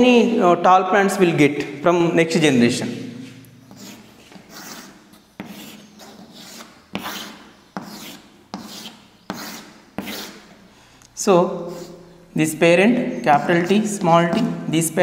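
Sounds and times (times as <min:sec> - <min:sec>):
chalk scraping on blackboard: 0:03.7 - 0:10.6, 0:11.6 - 0:12.3, 0:13.2 - 0:14.6.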